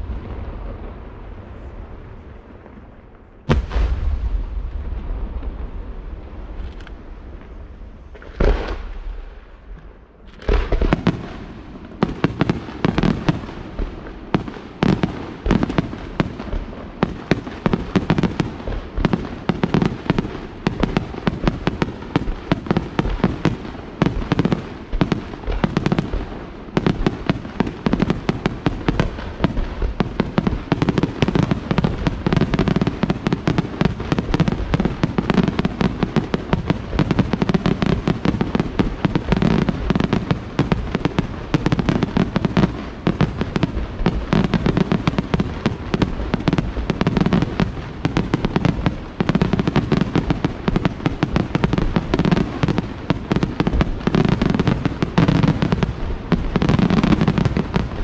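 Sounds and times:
fireworks bursting: 0.0s - 58.0s.

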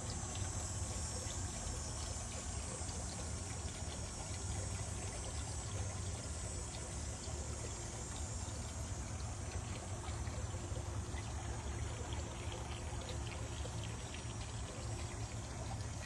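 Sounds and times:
fountain water trickling and splashing: 0.0s - 16.0s.

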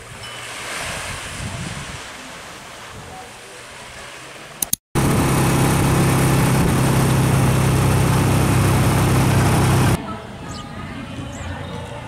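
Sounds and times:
wind and road noise: 0.0s - 10.1s
vehicle engine humming: 5.0s - 10.0s.

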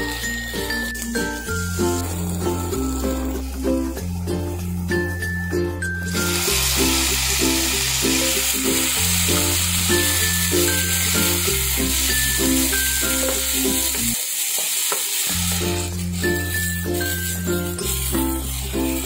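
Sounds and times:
background music: 0.0s - 14.2s, 15.4s - 19.0s
tomatoes sizzling in a pan: 0.0s - 19.0s
spatula stirring in a pan: 6.2s - 19.0s.

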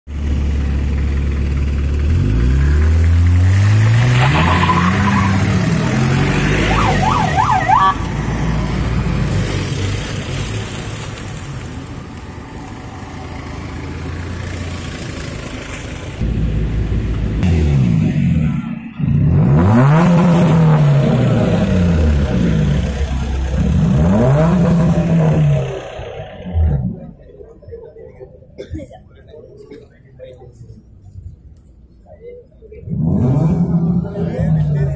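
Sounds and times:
vehicle engine revving: 1.1s - 10.8s, 16.2s - 27.3s, 32.8s - 34.9s
siren-like sweeping tone: 6.6s - 8.0s.

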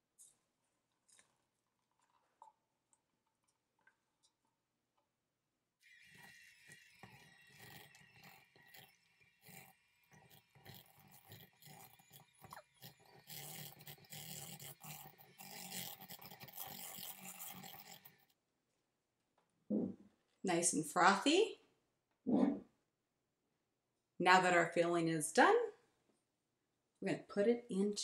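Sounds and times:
electric hand mixer whining: 5.8s - 18.3s.

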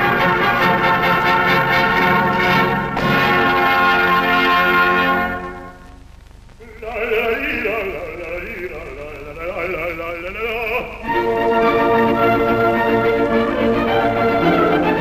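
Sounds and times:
orchestra playing: 0.0s - 5.8s, 11.1s - 15.0s
operatic voice singing: 6.6s - 15.0s.

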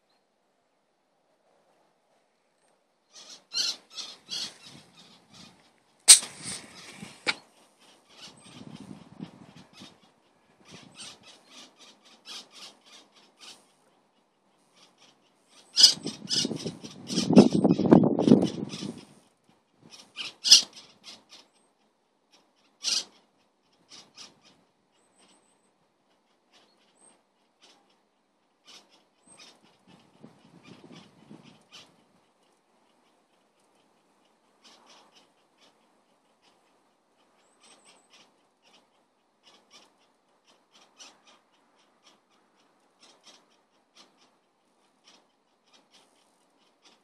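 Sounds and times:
soft tearing of feathers: 6.1s - 7.4s.

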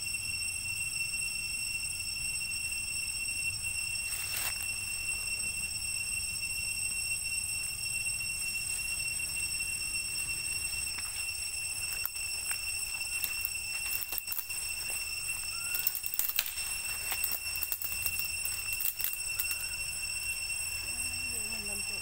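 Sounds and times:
insect drone: 0.0s - 22.0s
dry leaves and twigs crackling: 4.0s - 5.6s, 8.5s - 22.0s.

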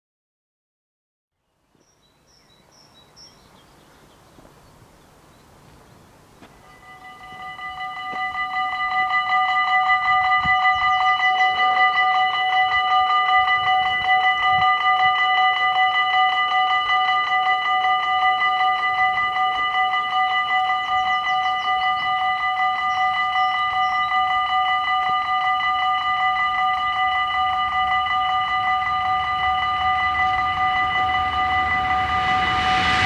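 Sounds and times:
level crossing bells clanging: 6.6s - 33.0s.

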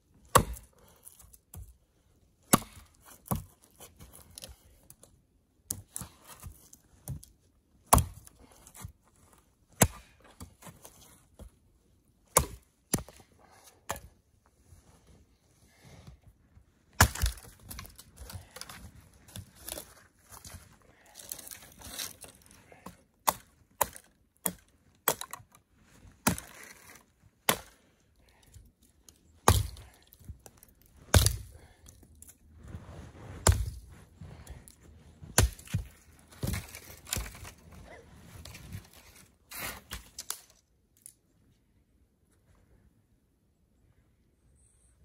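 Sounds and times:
axe chopping wood: 0.3s - 0.7s, 2.5s - 3.5s, 7.9s - 8.9s, 9.8s - 10.8s, 12.3s - 13.2s, 17.0s - 18.8s, 22.8s - 25.5s, 26.2s - 27.8s, 29.4s - 31.7s, 33.4s - 33.8s, 35.3s - 38.0s.

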